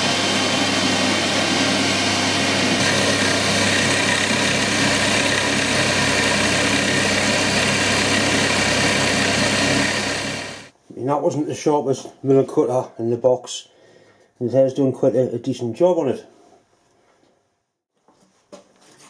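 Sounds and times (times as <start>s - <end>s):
lathe machine whirr: 0.0s - 10.7s.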